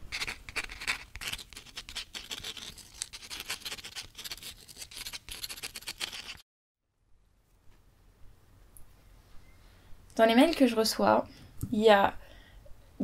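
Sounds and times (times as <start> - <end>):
pen scratching on paper: 0.1 - 6.4.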